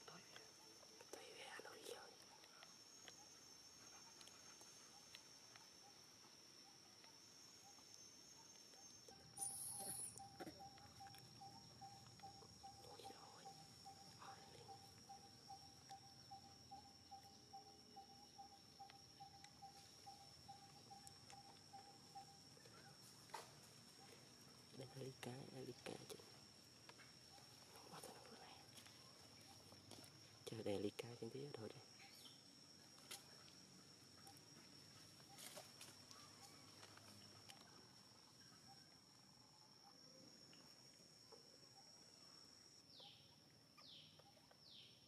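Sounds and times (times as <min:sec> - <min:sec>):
faint rustle: 0:32.1 - 0:38.3.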